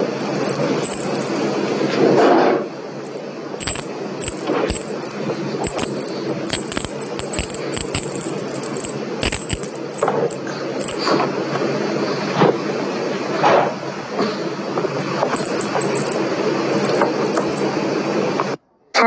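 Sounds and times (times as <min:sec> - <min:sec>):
small bells jingling: 0:00.2 - 0:01.7, 0:03.0 - 0:11.1, 0:15.0 - 0:17.8.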